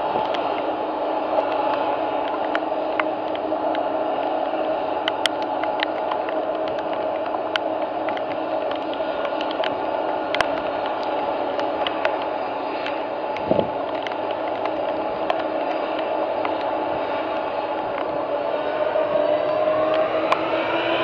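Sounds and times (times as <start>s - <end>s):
jet engines idling: 0.0s - 21.0s
sharp ticks: 1.4s - 18.2s.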